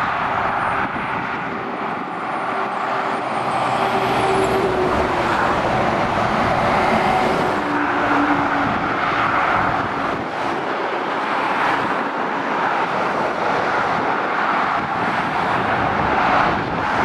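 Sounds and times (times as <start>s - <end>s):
lorry passing: 0.0s - 12.3s
motorway traffic roar: 0.0s - 17.0s.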